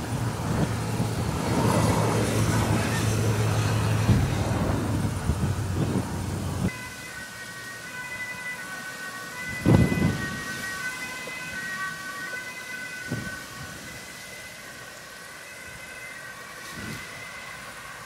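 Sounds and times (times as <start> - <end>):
wind buffeting microphone: 0.0 - 7.0, 9.3 - 14.4, 16.6 - 17.9.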